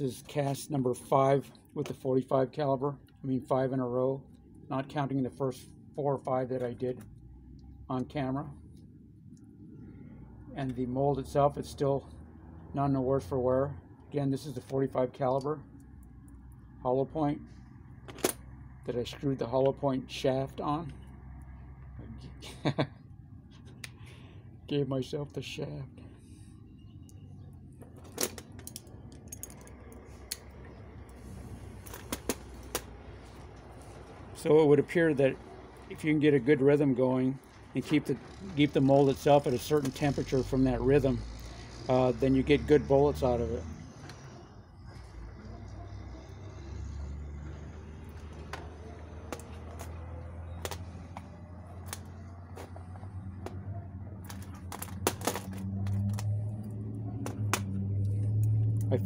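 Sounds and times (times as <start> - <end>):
metallic clicks and clinks: 28.0 - 30.4.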